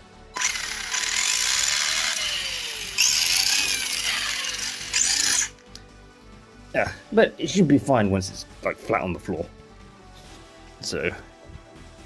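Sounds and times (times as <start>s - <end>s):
electric motor whirring: 0.4s - 5.7s.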